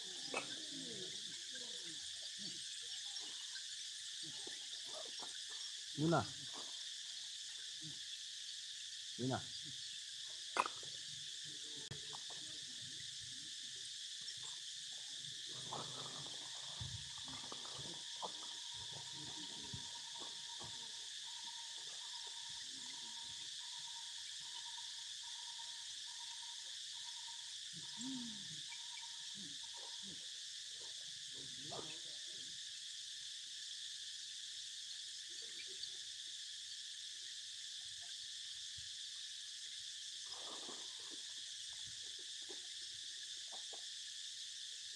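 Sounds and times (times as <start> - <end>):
chorus of forest insects: 0.0 - 44.9.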